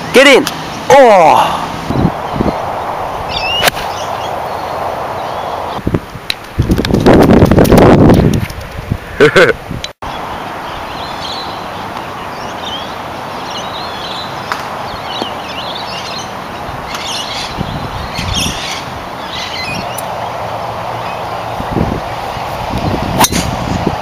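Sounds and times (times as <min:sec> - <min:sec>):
birds chirping: 0:00.0 - 0:05.9, 0:10.0 - 0:23.2
steady outdoor hiss: 0:00.0 - 0:24.0.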